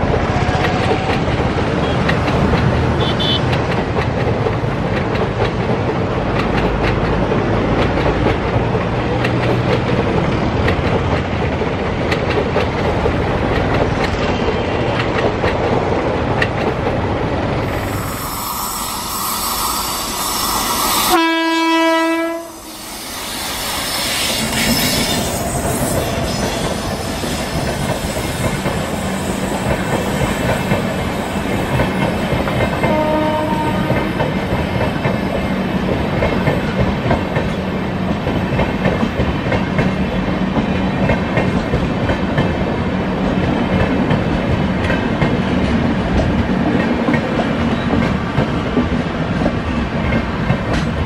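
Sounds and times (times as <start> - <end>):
train rumbling and clacking past: 0.0 - 51.0
train horn blast: 3.0 - 3.5, 21.0 - 22.8, 32.8 - 34.3.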